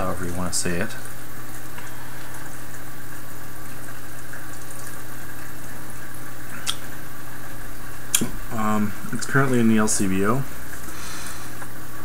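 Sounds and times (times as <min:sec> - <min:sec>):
steady hiss: 0:06.4 - 0:12.0.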